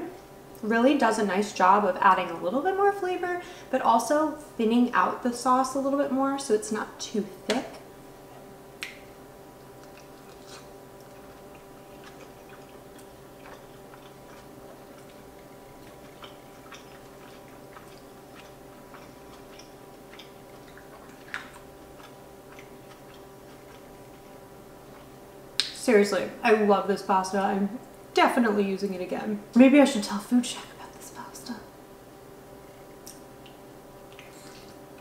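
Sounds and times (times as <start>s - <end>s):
faint steady hum: 0.0s - 35.0s
wet chewing clicks and smacks: 9.6s - 25.8s, 33.0s - 34.8s.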